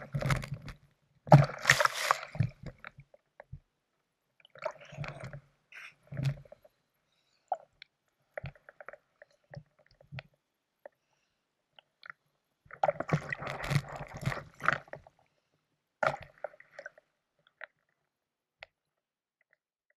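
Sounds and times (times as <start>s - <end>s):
ice clicks and knocks: 0.1s - 2.7s
fins splashing in water: 1.3s - 2.7s.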